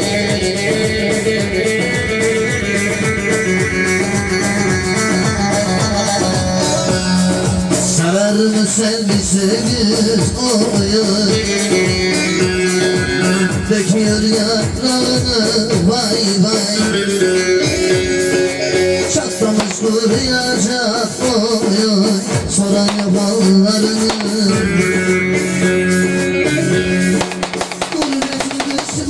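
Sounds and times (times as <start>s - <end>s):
folk dance music: 19.1s - 25.4s, 27.2s - 29.0s.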